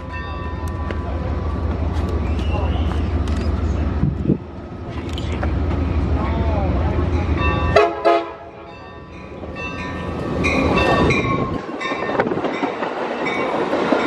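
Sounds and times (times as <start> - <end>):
train cars rolling past: 0.0 - 14.0
train horn blasts: 7.7 - 8.8.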